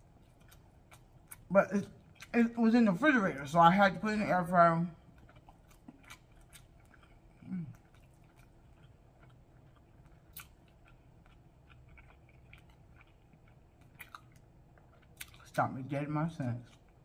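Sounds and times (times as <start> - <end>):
person chewing crispy food: 0.0 - 2.4, 5.0 - 15.6, 16.6 - 17.0.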